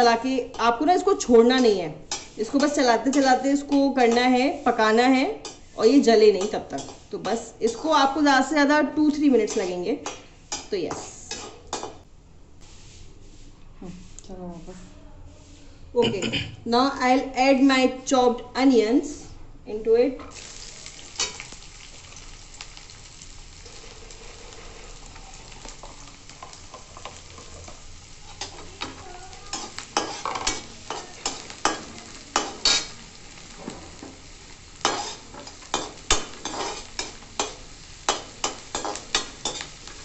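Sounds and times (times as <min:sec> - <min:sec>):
onions sizzling in pan: 0:00.0 - 0:12.0, 0:20.3 - 0:40.0
metal spoon scraping pan: 0:25.8 - 0:32.9, 0:34.8 - 0:40.0.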